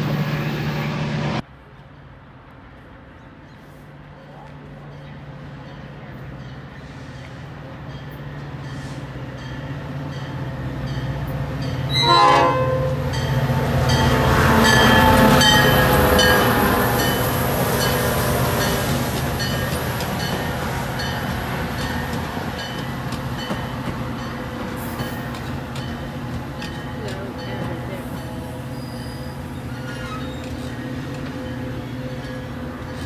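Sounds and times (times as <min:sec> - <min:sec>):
train cars rolling by: 0:00.0 - 0:33.0
crossing bell dinging: 0:07.8 - 0:18.8
train horn blast: 0:11.9 - 0:13.1.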